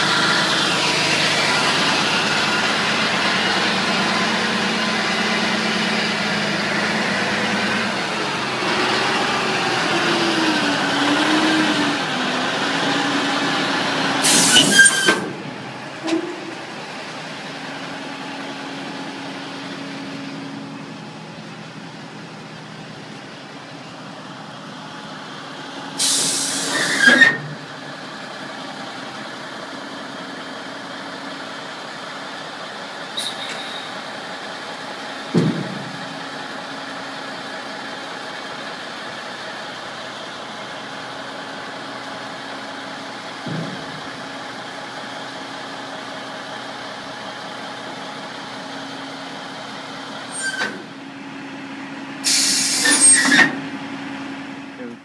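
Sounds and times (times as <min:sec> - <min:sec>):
diesel truck engine running: 0:00.0 - 0:55.0
loud air hisses: 0:14.2 - 0:15.1, 0:26.0 - 0:27.0, 0:52.2 - 0:53.3.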